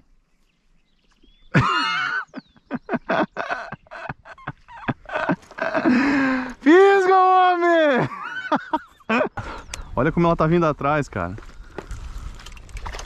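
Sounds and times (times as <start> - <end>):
person shouting excitedly: 6.6 - 8.1.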